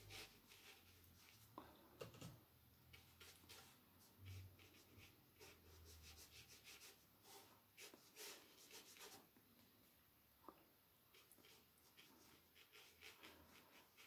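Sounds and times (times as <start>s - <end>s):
brush strokes on paper: 0.0s - 1.6s, 2.9s - 9.3s, 11.1s - 14.0s.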